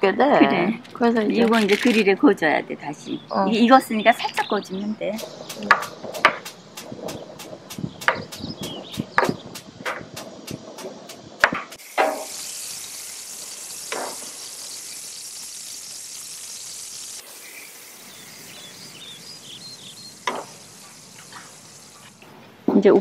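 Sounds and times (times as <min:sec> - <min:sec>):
food sizzling on a grill: 0:03.5 - 0:22.3
gas grill igniter clicking: 0:05.2 - 0:12.5.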